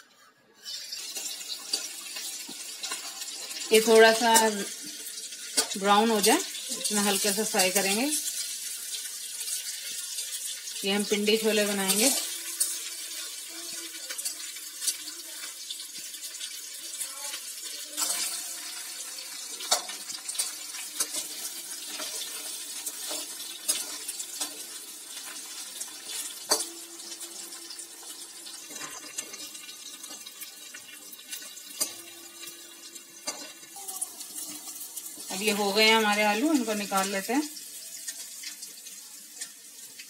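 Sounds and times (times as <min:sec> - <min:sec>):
metal spoon clinking and scraping: 0:00.6 - 0:10.6, 0:17.8 - 0:26.8, 0:33.2 - 0:35.3
potatoes sizzling in oil: 0:00.6 - 0:40.0.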